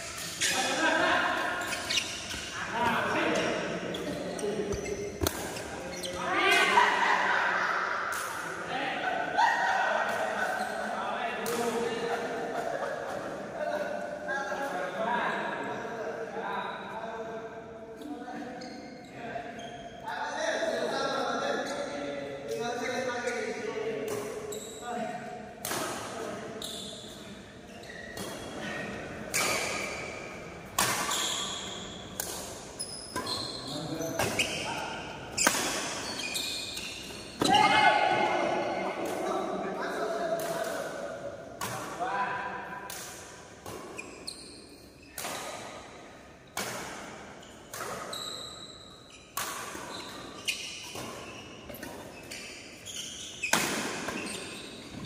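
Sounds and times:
shoes squeaking on court: 0.0 - 0.8, 1.4 - 6.3, 18.5 - 20.0, 26.6 - 37.6, 43.6 - 45.8, 46.4 - 55.0
racket hitting shuttlecock: 5.2 - 5.6, 25.6 - 26.1, 29.3 - 33.4, 35.3 - 37.5, 42.8 - 44.3, 45.2 - 48.1, 49.3 - 52.1, 53.4 - 55.0
racket striking shuttlecock: 30.6 - 31.1.

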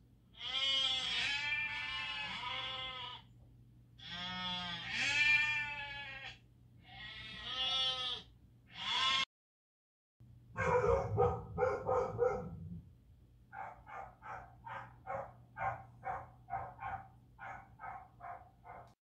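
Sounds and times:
goat bleating: 0.4 - 3.3, 4.0 - 9.3.

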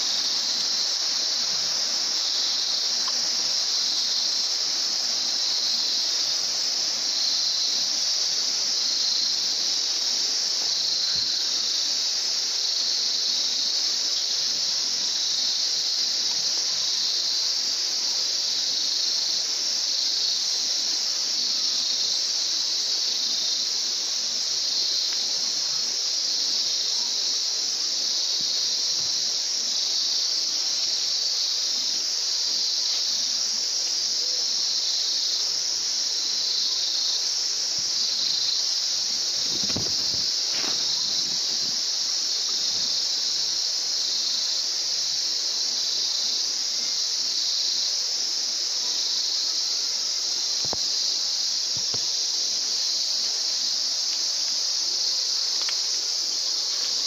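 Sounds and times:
insects shrilling: 34.1 - 44.6.

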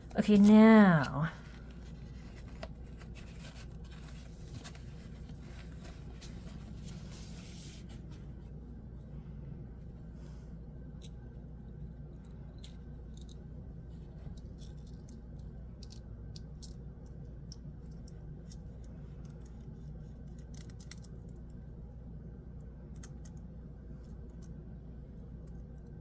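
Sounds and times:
steady low hum: 0.0 - 26.0
small metal parts clicking: 20.3 - 21.5.

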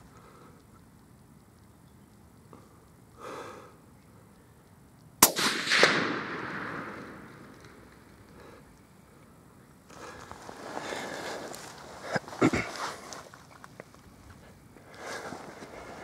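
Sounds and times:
rifle shot with echo: 5.2 - 8.0.

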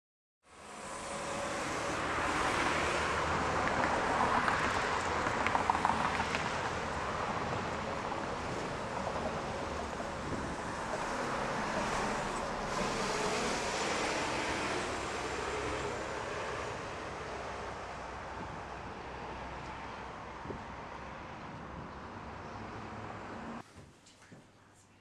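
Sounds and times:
cars and bus passing: 0.5 - 23.6.

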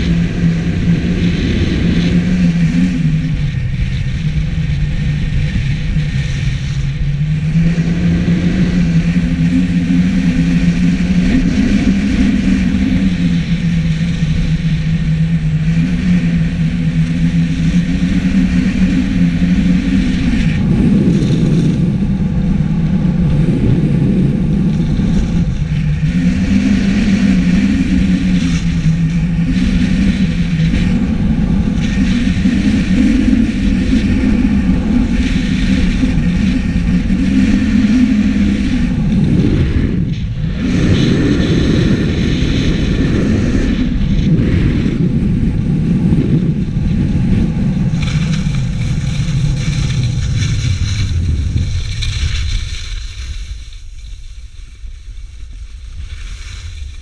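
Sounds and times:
low droning hum: 0.0 - 57.0
wind on camera microphone: 0.0 - 57.0
skis on packed snow: 46.6 - 57.0.

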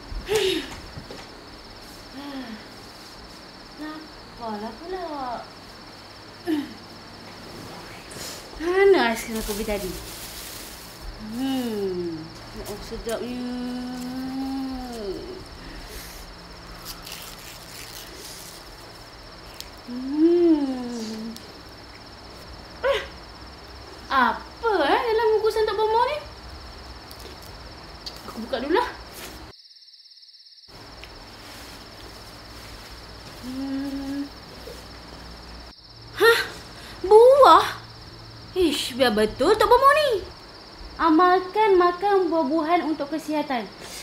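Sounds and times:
high cricket-like trill: 0.0 - 44.0
woman humming with mouth closed: 19.9 - 21.5, 33.4 - 34.4.

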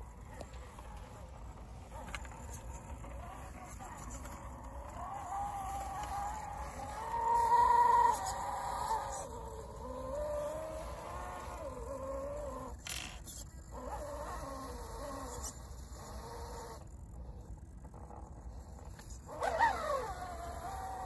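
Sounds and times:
electric motor whining: 0.0 - 17.1, 17.9 - 21.0.

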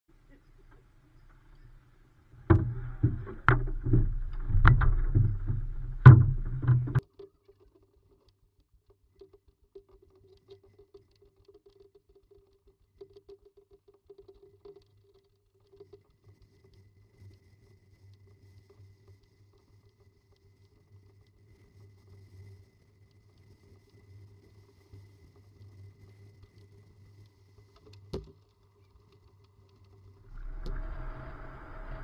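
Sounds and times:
faint ticks: 0.3 - 32.0
muffled knocks and bumps on hull: 2.4 - 7.0.

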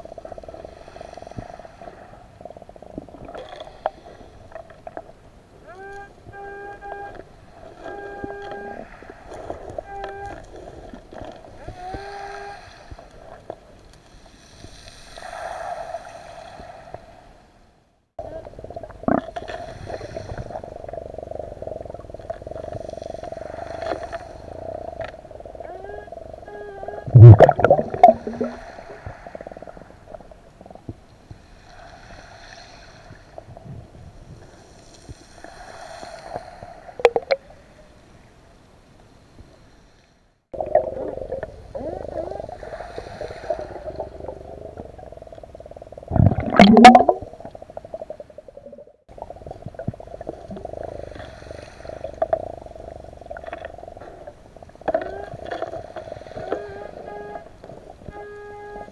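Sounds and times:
exhaled breath bubbles underwater: 18.3 - 31.0, 35.3 - 37.6, 40.6 - 58.9.

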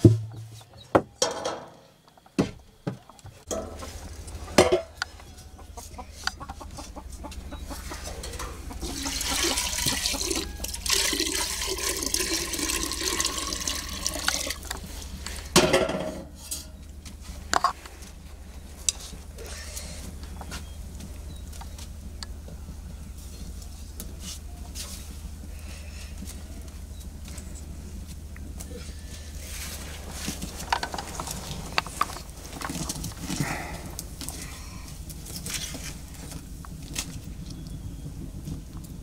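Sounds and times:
metal pots knocking: 3.5 - 3.9, 4.6 - 5.0, 15.5 - 16.7
water pouring into metal pot: 8.8 - 14.7.

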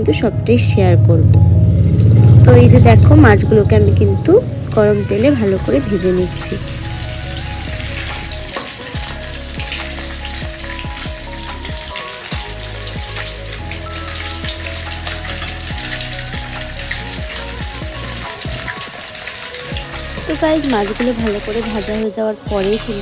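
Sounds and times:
fish sizzling in hot oil: 5.0 - 23.0.

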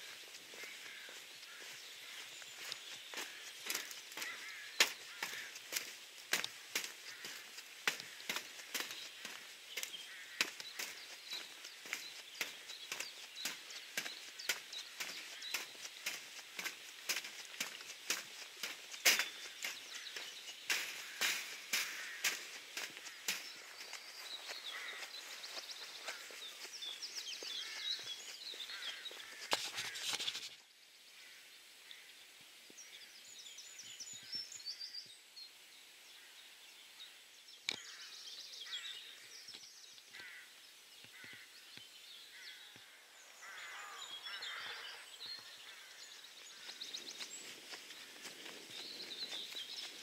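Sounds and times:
birds singing and chirping: 0.0 - 30.6, 37.6 - 50.0.

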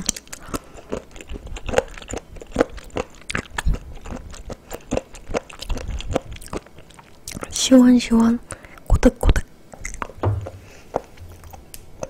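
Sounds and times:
chewing with short clicks: 0.0 - 7.5.

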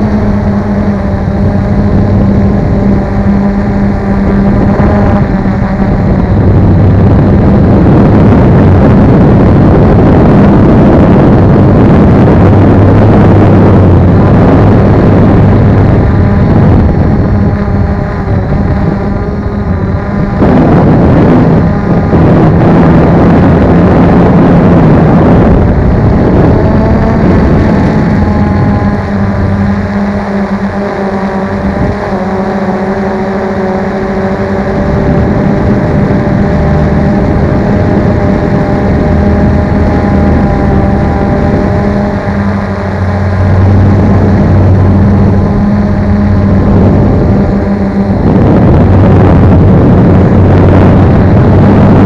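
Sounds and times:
drone motors humming: 0.0 - 52.0
rushing air: 0.0 - 52.0.

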